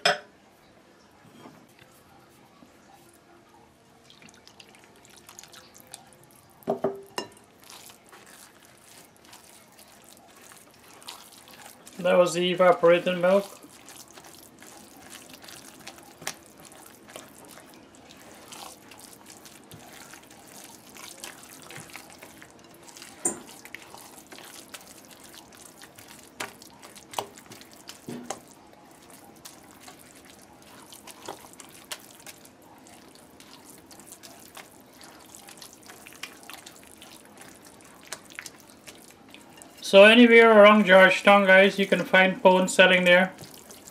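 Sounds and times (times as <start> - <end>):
spatula stirring wet mix: 3.9 - 43.9.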